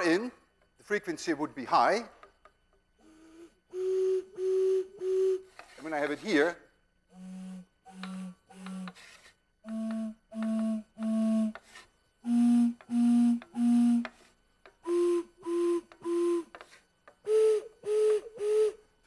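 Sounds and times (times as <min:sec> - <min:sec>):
slide whistle toots: 0:03.1 - 0:05.6, 0:07.2 - 0:09.0, 0:09.6 - 0:11.6, 0:12.2 - 0:14.1, 0:14.8 - 0:16.6, 0:17.2 - 0:18.9.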